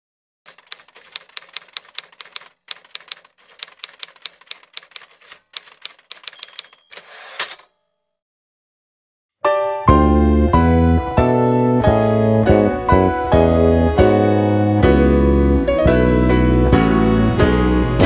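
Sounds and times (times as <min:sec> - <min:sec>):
typewriter carriage return: 0:00.5 - 0:07.7
typewriter keystrokes: 0:00.5 - 0:07.7
typewriter bell ring: 0:00.5 - 0:07.8.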